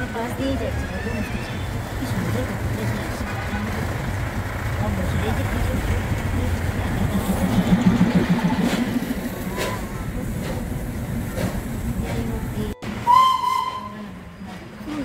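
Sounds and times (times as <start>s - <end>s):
car driving: 0.0s - 13.1s
train whistle: 13.0s - 14.2s.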